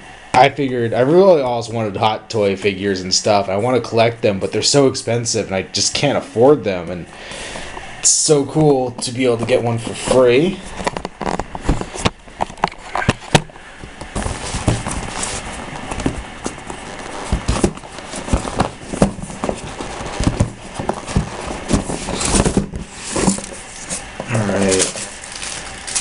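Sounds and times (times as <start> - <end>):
cardboard packaging being handled: 8.5 - 26.0.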